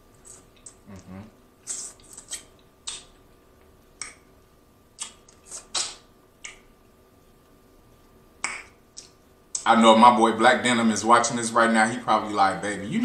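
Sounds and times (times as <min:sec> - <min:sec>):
wet mouth smacks and sucks: 0:01.6 - 0:03.2, 0:05.0 - 0:06.7, 0:08.4 - 0:09.6.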